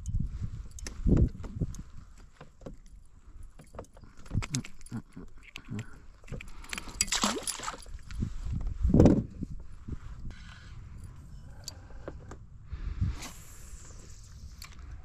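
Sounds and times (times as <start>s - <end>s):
clicks and knocks on kayak: 0.8s - 8.0s
water splashing: 6.8s - 7.9s.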